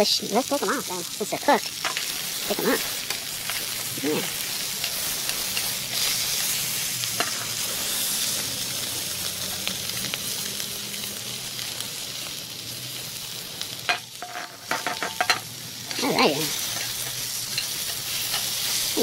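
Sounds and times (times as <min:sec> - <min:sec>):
sausages sizzling in pan: 0:00.0 - 0:19.0
metal tongs clicking on pan: 0:04.8 - 0:05.8, 0:13.9 - 0:18.9.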